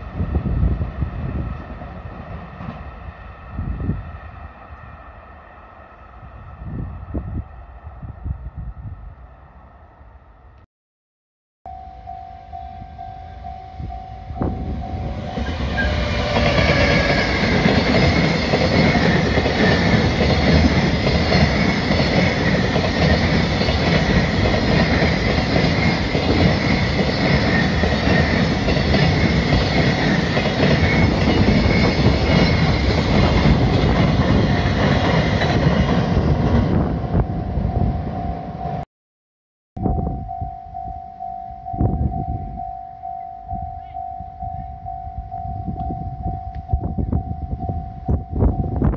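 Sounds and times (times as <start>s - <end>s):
freight train passing: 0.0s - 10.6s, 11.7s - 38.8s.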